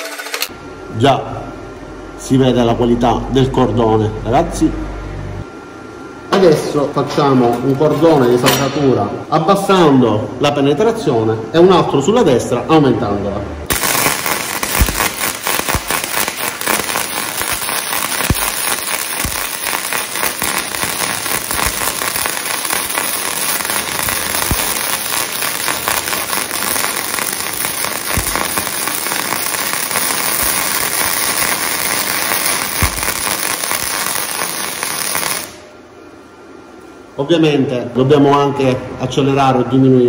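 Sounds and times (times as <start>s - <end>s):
welding arc crackling: 13.7s - 35.7s.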